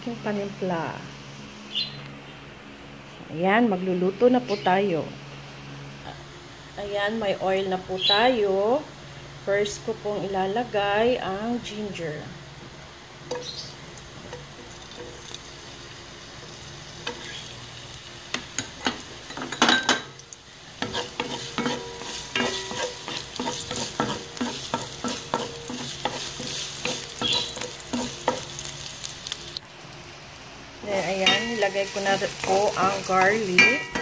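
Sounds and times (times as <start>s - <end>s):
ginger sizzling in hot oil: 12.5s - 34.0s
wooden spatula scraping pan: 20.8s - 28.4s.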